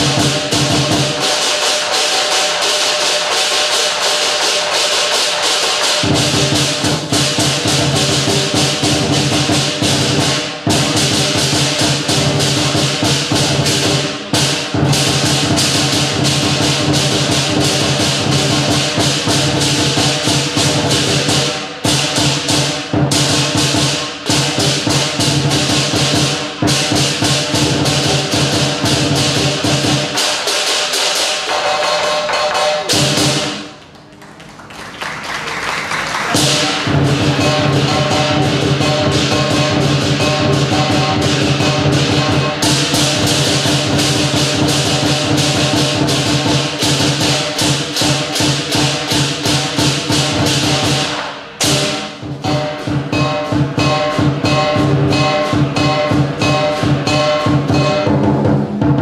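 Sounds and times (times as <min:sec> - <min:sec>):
large drum beaten quickly: 0:00.0 - 0:33.8, 0:36.0 - 0:59.0
cymbals clashing: 0:00.0 - 0:33.9, 0:36.1 - 0:59.0
gong ringing: 0:36.3 - 0:47.5, 0:49.5 - 0:58.8.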